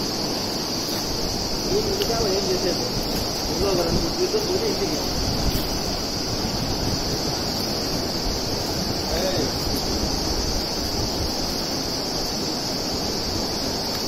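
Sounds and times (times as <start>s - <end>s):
high-pitched insect drone: 0.0s - 14.0s
wind rumbling on microphone: 0.0s - 14.0s.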